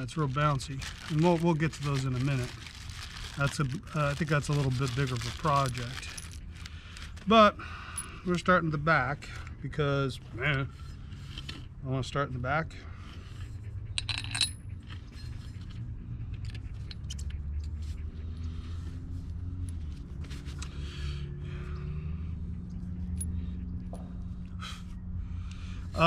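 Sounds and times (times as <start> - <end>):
small metal parts clinking: 0.4 - 7.3, 14.0 - 15.7
steady low hum: 5.8 - 26.0.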